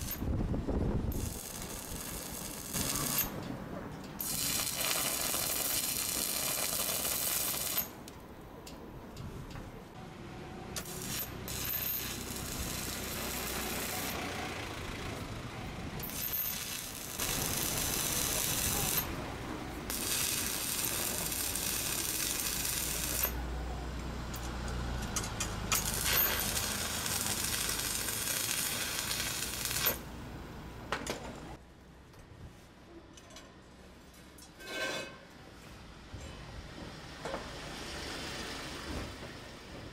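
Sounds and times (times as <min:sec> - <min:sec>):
welding arc crackling and sizzling: 0:00.0 - 0:00.3, 0:01.0 - 0:03.4, 0:04.2 - 0:08.0, 0:10.8 - 0:14.7, 0:16.0 - 0:23.4, 0:24.3 - 0:30.2.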